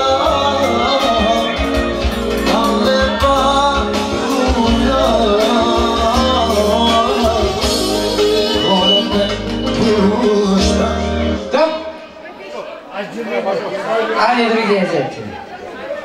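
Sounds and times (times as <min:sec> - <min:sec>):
person singing: 0:00.0 - 0:11.5
live band playing dance music: 0:00.0 - 0:12.4.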